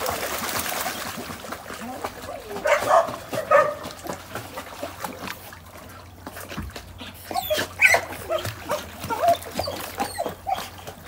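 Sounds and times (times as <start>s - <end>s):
water splashing from swimming dogs: 0.0s - 11.0s
dog barking: 2.6s - 3.9s.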